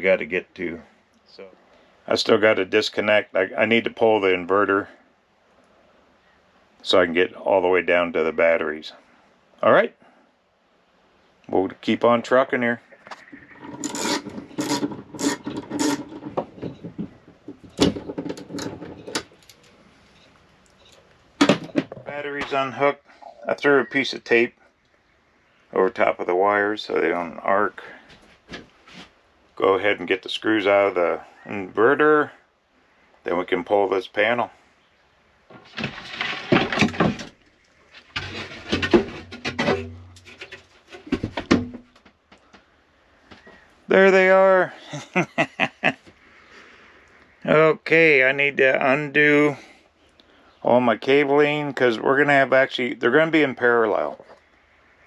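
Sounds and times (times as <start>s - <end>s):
plywood scraping against wood: 12.9s - 19.8s, 35.5s - 42.5s
wooden knocks: 13.0s - 19.3s, 21.4s - 22.6s, 38.2s - 42.7s.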